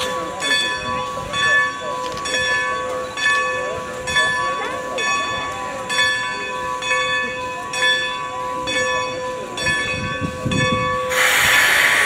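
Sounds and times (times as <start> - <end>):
steam locomotive bell ringing: 0.0 - 12.0
steam locomotive chuffs: 9.3 - 12.0.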